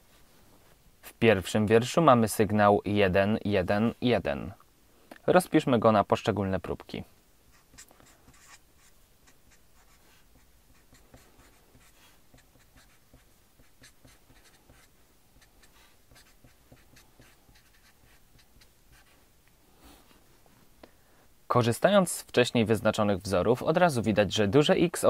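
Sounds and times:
marker writing on paper: 7.5s - 19.2s.

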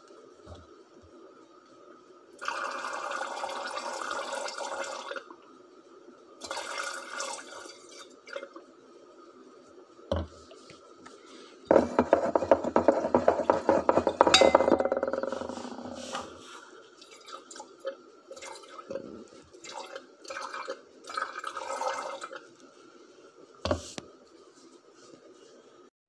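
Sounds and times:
knock: 11.7s - 15.5s
glassy clinks: 14.4s - 14.8s
water pouring into glass beaker: 19.6s - 22.4s.

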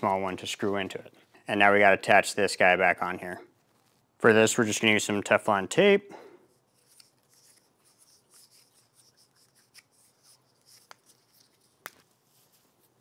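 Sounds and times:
tape rubbing and crinkling: 3.5s - 4.2s, 6.5s - 13.0s.

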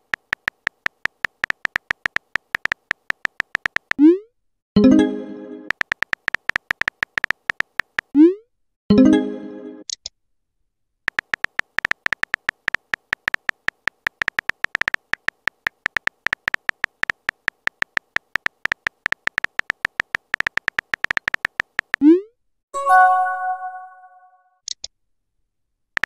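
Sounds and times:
phone keyboard clicks: 0.0s - 4.0s, 5.7s - 8.1s, 11.1s - 22.0s.

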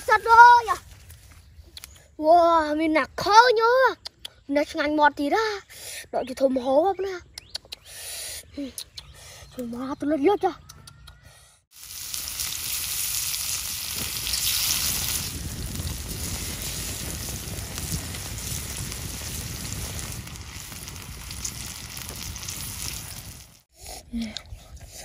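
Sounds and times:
food sizzling on hot stone: 11.7s - 23.7s
low rumble: 13.8s - 23.6s.

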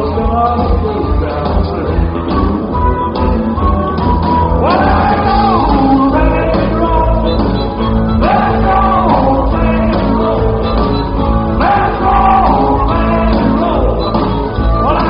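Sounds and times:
live rock band playing: 0.0s - 15.0s
singer holding long notes: 4.5s - 7.4s, 8.1s - 15.0s.

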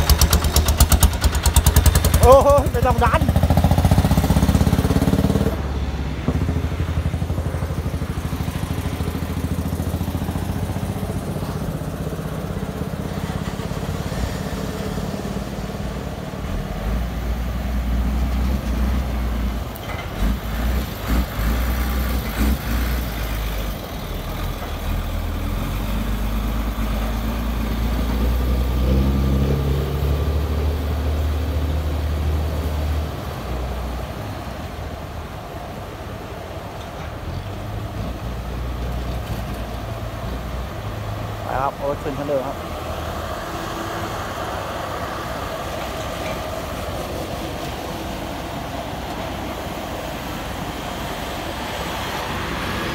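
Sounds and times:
truck engine running: 0.0s - 28.8s
combine harvester engine: 0.0s - 52.9s.

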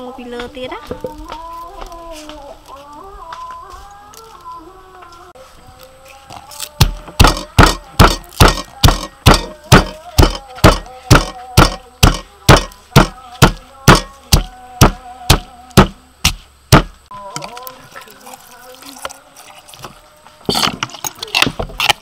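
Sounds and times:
stone pestle pounding in mortar: 6.8s - 17.0s.

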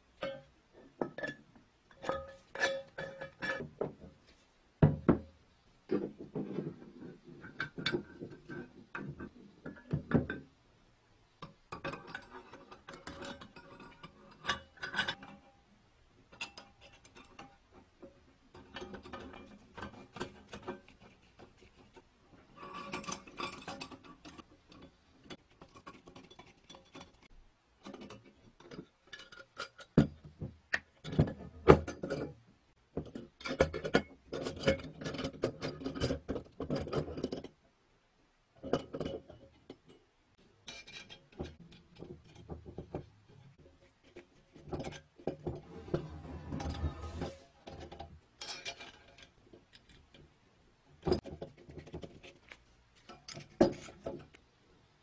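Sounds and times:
metal scraping on metal: 18.6s - 24.5s, 44.6s - 49.4s
metal parts clicking and clinking: 45.6s - 50.3s.

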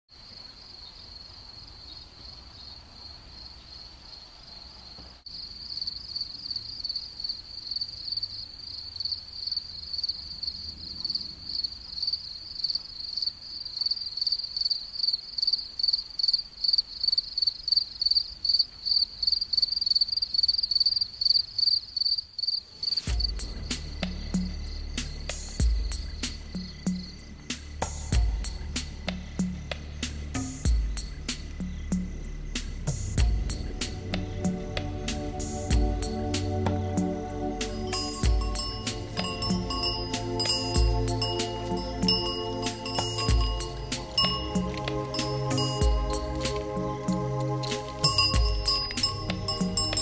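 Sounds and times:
crickets chirping: 0.1s - 50.0s
deep low rumble: 23.1s - 27.4s, 28.1s - 37.5s.

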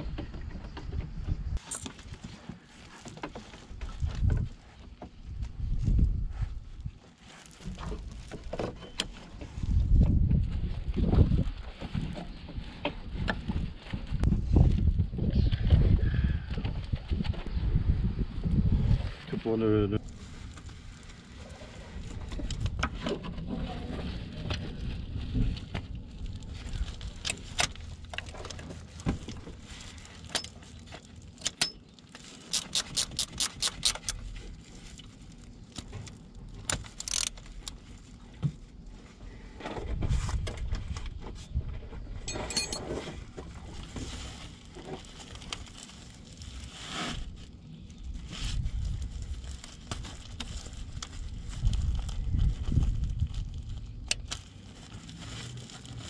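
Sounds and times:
metal tools clinking: 42.2s - 43.0s.

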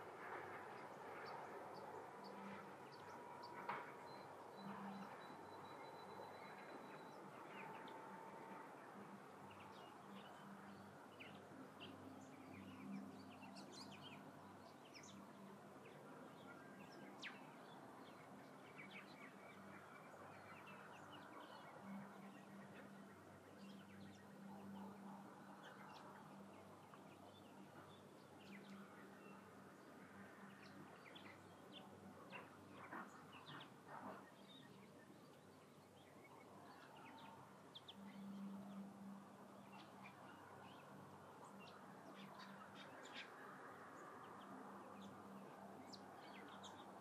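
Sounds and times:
faint bird chirps: 2.3s - 17.6s.

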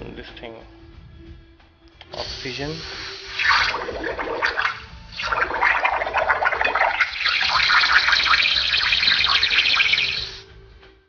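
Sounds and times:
air bubbling under water: 3.3s - 10.4s.

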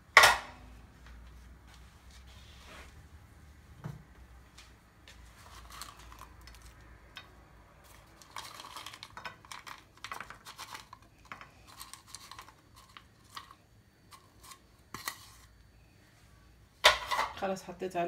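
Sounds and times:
nuts and raisins clicking and rattling: 5.4s - 15.6s.

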